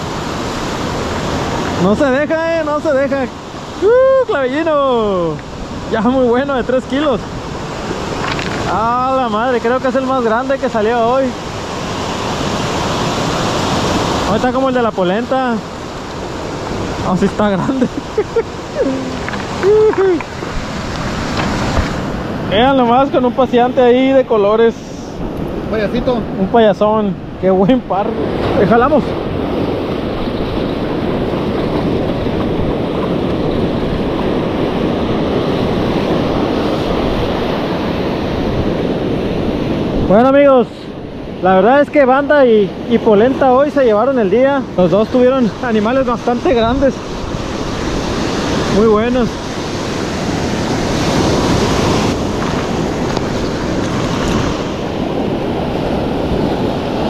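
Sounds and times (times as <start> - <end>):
ocean surf: 0.0 - 57.0
wind noise on microphone: 10.7 - 41.6, 42.4 - 57.0.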